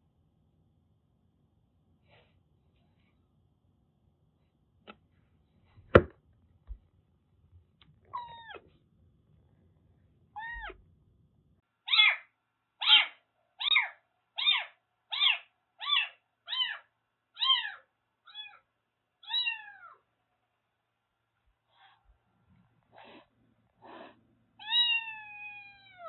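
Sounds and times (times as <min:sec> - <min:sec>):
kitten meowing: 0:08.1 - 0:08.6, 0:10.4 - 0:10.8, 0:12.8 - 0:18.6, 0:19.2 - 0:20.0, 0:24.6 - 0:26.0.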